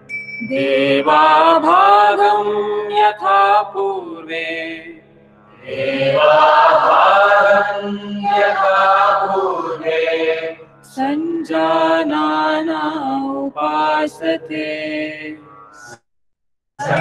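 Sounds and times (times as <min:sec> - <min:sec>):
person chanting a mantra: 0:05.6 - 0:15.4.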